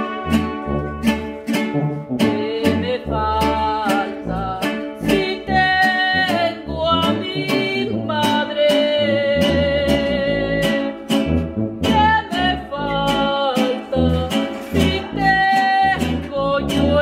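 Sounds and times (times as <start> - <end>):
strummed guitar: 0.0 - 17.0
woman singing wavering notes: 2.3 - 11.0
deep bass notes: 9.1 - 13.2.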